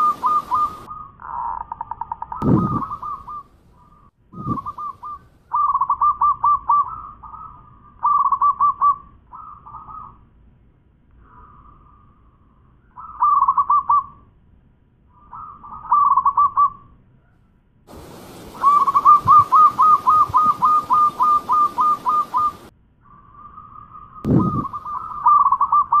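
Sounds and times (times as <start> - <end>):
dove cooing: 0.0 - 3.5, 4.4 - 10.2, 17.9 - 22.7, 24.3 - 26.0.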